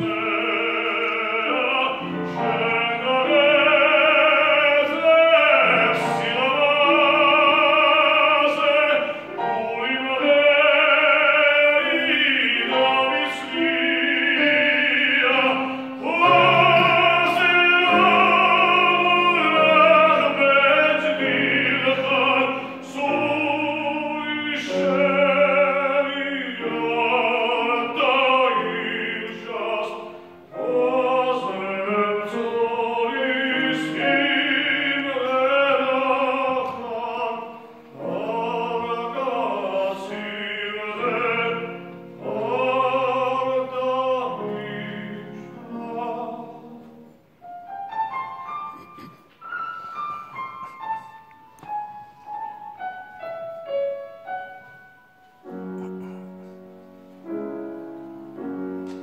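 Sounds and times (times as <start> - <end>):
man singing operatically: 0.0 - 47.0
grand piano accompaniment: 0.0 - 59.0.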